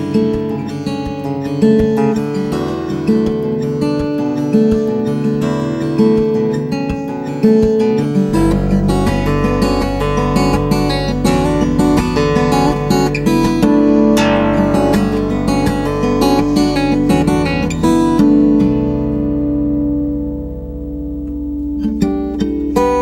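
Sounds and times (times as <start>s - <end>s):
strummed acoustic guitar: 0.0s - 23.0s
low bass line: 8.3s - 23.0s.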